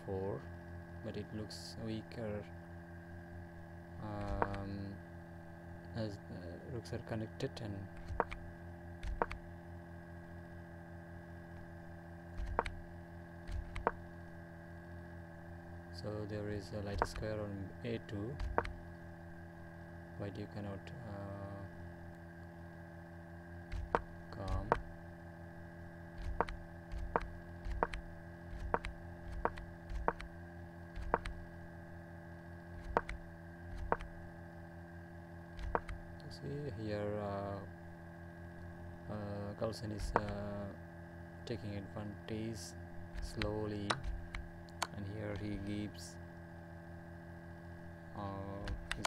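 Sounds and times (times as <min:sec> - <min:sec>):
steady low hum: 0:00.0 - 0:49.0
computer mouse clicks: 0:04.2 - 0:04.6, 0:08.0 - 0:08.4, 0:09.0 - 0:09.4, 0:12.4 - 0:12.8, 0:13.4 - 0:14.0, 0:16.9 - 0:17.3, 0:18.4 - 0:18.8, 0:23.7 - 0:24.8, 0:26.2 - 0:30.3, 0:31.0 - 0:31.4, 0:32.8 - 0:34.1, 0:35.6 - 0:36.0, 0:40.0 - 0:40.4, 0:43.2 - 0:45.0, 0:48.6 - 0:49.0.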